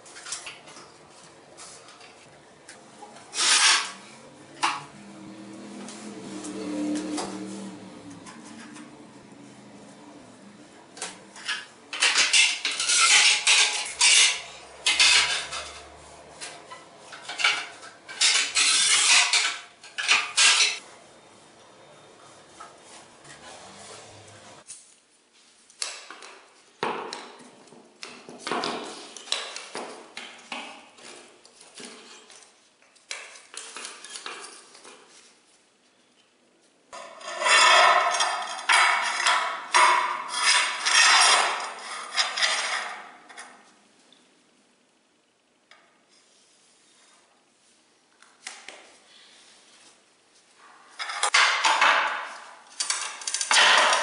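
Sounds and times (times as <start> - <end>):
scraping on ceramic tile: 3.1 - 5.0, 5.8 - 10.1, 11.0 - 20.8, 36.9 - 43.8, 50.6 - 54.0
metal ruler clicking and rattling: 51.0 - 54.0.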